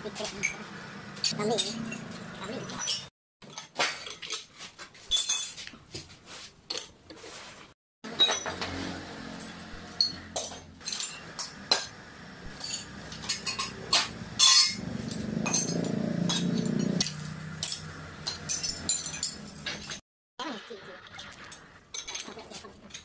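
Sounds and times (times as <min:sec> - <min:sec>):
metal tools clinking: 0:01.2 - 0:05.7, 0:08.1 - 0:11.9, 0:12.5 - 0:20.0
low mechanical hum: 0:08.4 - 0:20.0.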